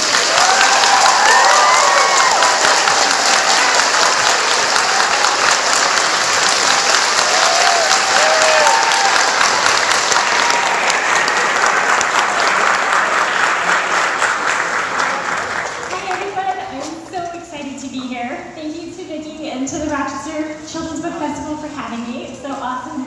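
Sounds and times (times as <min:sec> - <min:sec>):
audience applauding: 0:00.0 - 0:16.4
calls from the crowd: 0:00.0 - 0:16.4.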